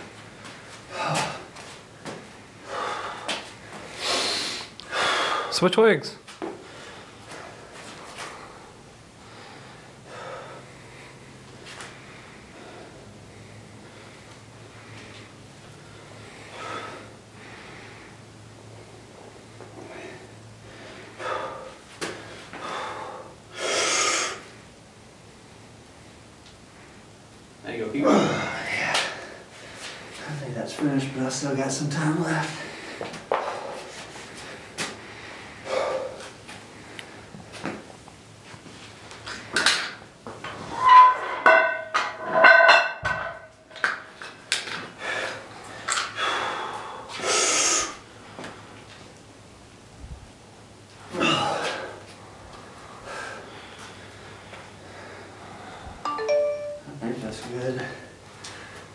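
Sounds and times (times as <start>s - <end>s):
man groaning with strain: 0.9s - 1.5s, 28.0s - 29.2s, 51.1s - 52.0s
man breathing hard: 2.6s - 5.6s, 6.5s - 18.8s, 19.7s - 24.5s, 28.1s - 30.3s, 32.5s - 37.4s, 44.9s - 48.7s, 51.1s - 56.0s
man exhaling forcefully: 46.2s - 48.0s, 51.1s - 52.0s.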